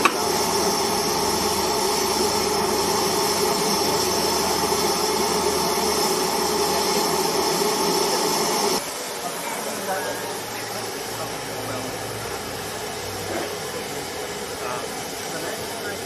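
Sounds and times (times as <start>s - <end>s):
steam locomotive hissing: 0.0s - 16.0s.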